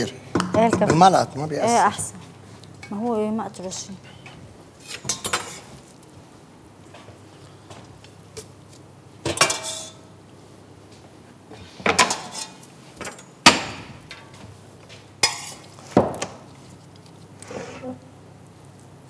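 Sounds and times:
metal tongs clanking against pot: 9.3 - 10.0.

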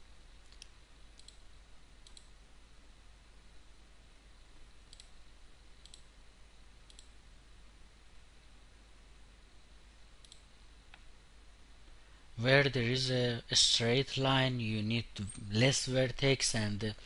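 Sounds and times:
computer mouse clicks: 0.4 - 2.4, 4.9 - 5.2, 5.8 - 6.1, 6.9 - 7.2, 10.2 - 11.1.

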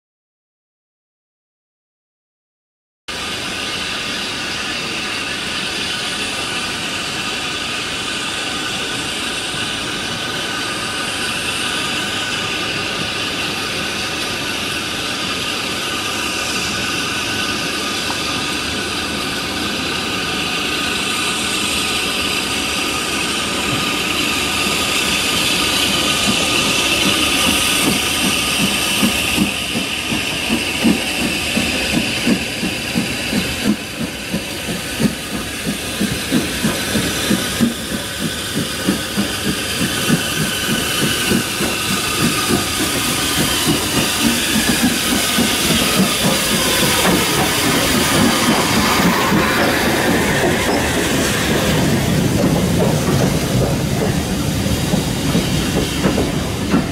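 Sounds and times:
locomotive rhythmic pulsing: 3.1 - 56.9
steam locomotive hissing: 3.1 - 56.9.

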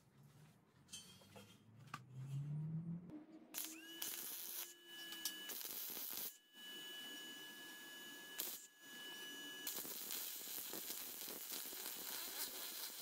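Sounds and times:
faint high whine: 3.1 - 10.0
welding arc crackling and hissing: 3.6 - 6.4, 7.0 - 13.0.

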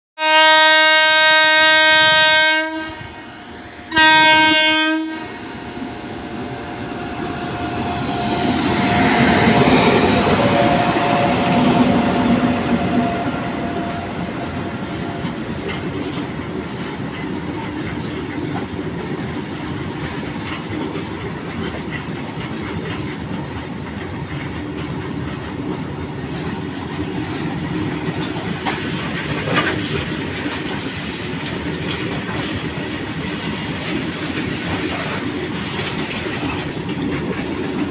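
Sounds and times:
locomotive horn blasts: 0.2 - 5.4
freight wagons clattering over rail joints: 15.0 - 37.9.

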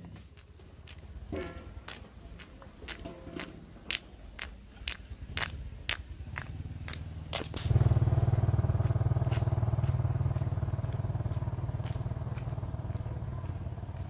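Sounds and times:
motorbike engine running: 5.3 - 14.0.

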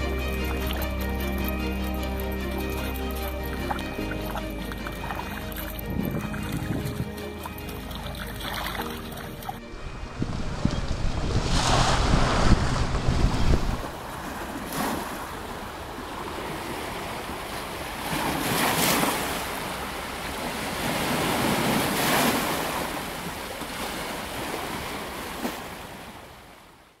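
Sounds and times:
small waves washing on sand: 9.9 - 26.9.

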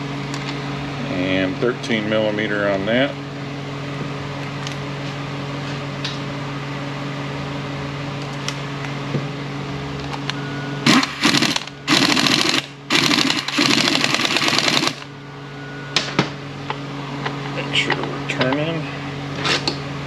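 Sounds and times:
steady shop hum: 0.0 - 20.0
pneumatic impact wrench rattling: 10.8 - 15.1.

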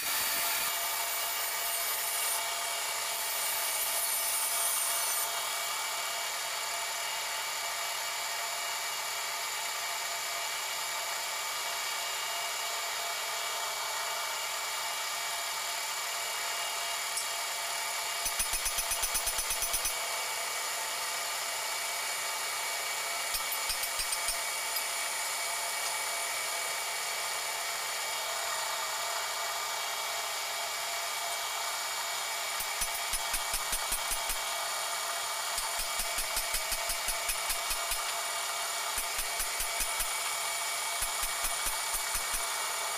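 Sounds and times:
metal lathe whining: 0.0 - 7.2
hiss of cutting tool: 0.0 - 7.3, 17.0 - 42.9.

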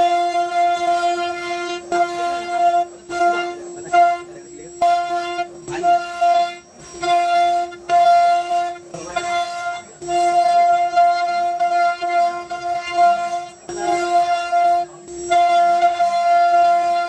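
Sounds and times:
router spindle whining: 0.0 - 17.0.

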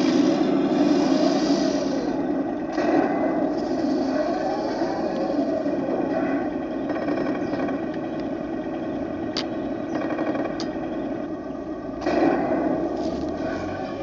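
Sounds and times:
toy tank motor whining: 0.0 - 9.2.

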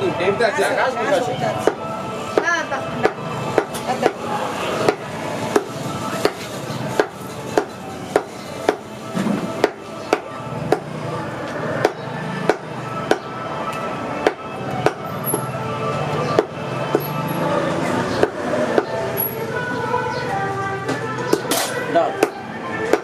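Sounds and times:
background music: 0.0 - 23.0
cleaver chopping on wooden block: 2.4 - 4.2, 4.8 - 8.8, 9.6 - 10.9, 11.8 - 13.3, 14.2 - 15.4, 16.3 - 17.1, 18.2 - 19.0, 22.2 - 23.0.

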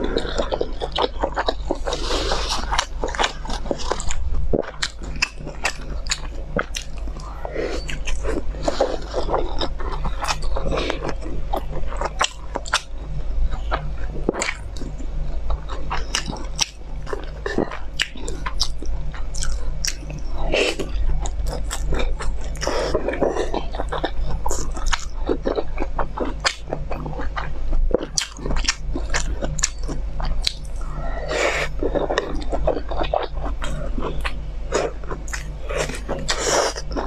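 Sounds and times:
close chewing and biting: 0.0 - 37.0
steady low hum: 0.0 - 37.0.

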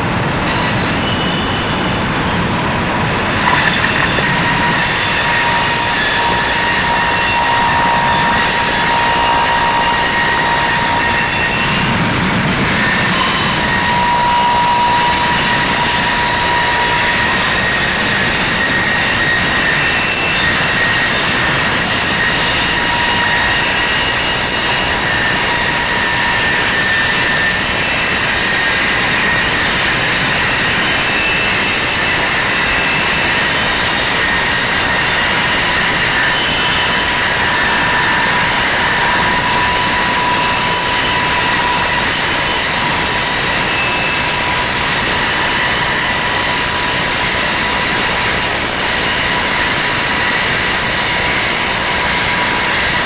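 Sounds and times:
thin high squealing: 3.2 - 11.2.

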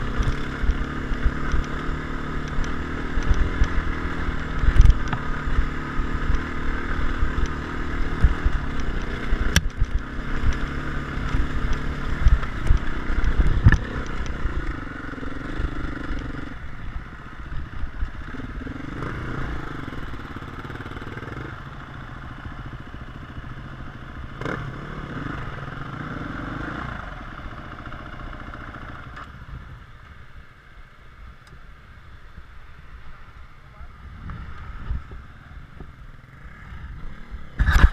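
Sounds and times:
dirt bike engine running: 0.0 - 29.9, 33.1 - 37.9.

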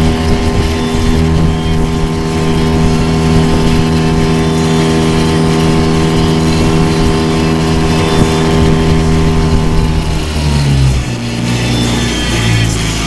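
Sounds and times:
outboard motor running: 0.0 - 13.0.

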